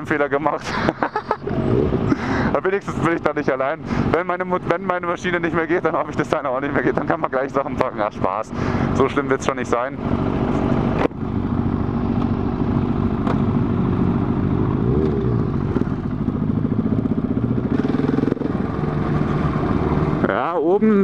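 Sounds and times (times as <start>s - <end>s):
motorcycle engine at low revs: 0.0s - 20.5s.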